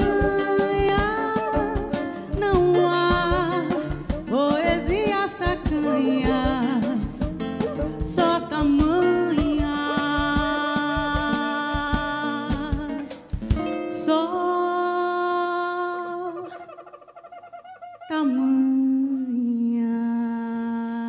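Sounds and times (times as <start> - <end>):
samba percussion: 0.0 - 13.7
acoustic guitar: 0.0 - 16.5
woman singing: 0.0 - 16.7, 18.1 - 21.0.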